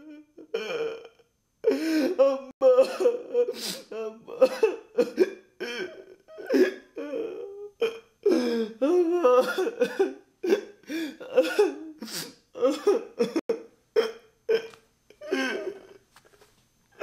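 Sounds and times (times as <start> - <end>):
person coughing gasping groaning: 1.9 - 6.9, 7.8 - 16.0.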